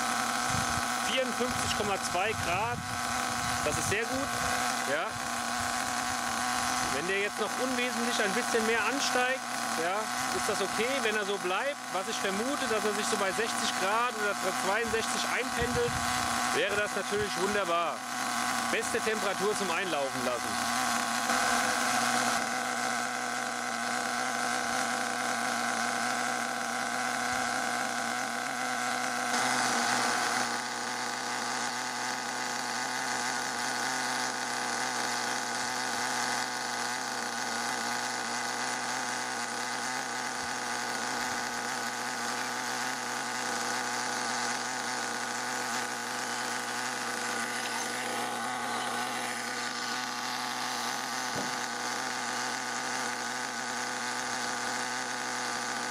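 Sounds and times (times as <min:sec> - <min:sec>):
small nitro engine running: 0:00.0 - 0:55.9.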